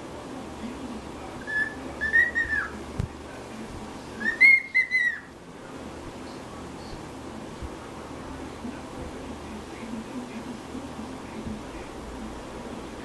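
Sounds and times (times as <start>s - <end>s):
cockatiel whistling: 1.4s - 2.8s, 4.2s - 5.3s.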